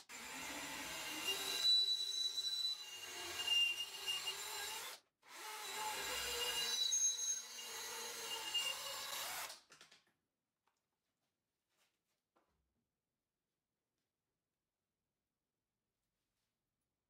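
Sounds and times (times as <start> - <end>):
bandsaw cutting steel tube: 0.0 - 9.5.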